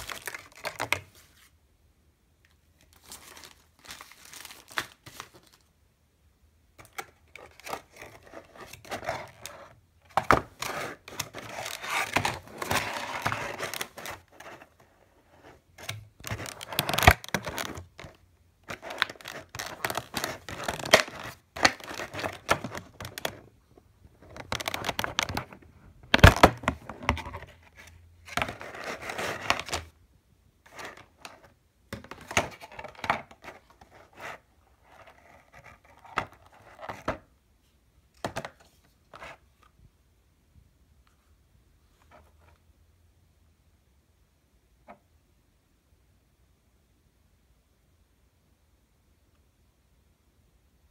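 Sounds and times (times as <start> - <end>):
plastic packaging crinkling and tearing: 0.0 - 1.1, 2.9 - 5.7, 15.8 - 23.4.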